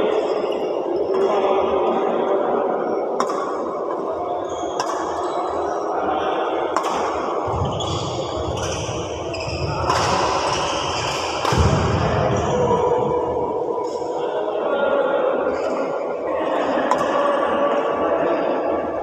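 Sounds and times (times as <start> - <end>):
racket striking shuttlecock: 3.2 - 3.7, 4.8 - 5.2, 6.7 - 7.6, 9.8 - 11.8, 16.9 - 17.1.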